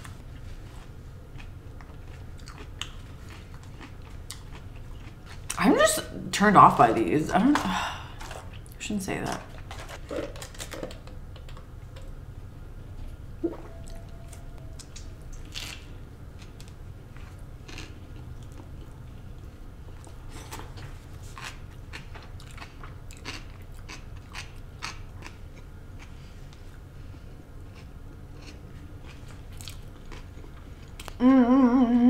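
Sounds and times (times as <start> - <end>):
chewing crunchy fried food: 0.1 - 5.6, 9.4 - 12.2, 13.9 - 31.2.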